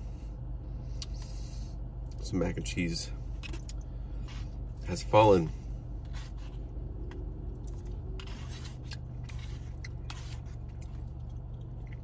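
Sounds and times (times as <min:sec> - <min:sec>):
low hum: 0:00.0 - 0:12.0
plastic fork scraping bowl: 0:06.0 - 0:06.6, 0:07.7 - 0:11.0.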